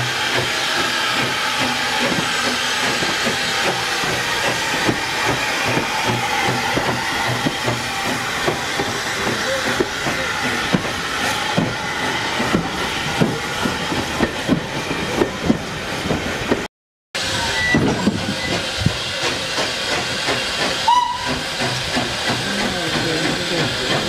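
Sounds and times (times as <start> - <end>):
train wheels clicking over rail joints: 0.0 - 16.7, 17.7 - 24.0
hiss of steam: 17.2 - 24.0
high steam whistle: 20.8 - 21.4.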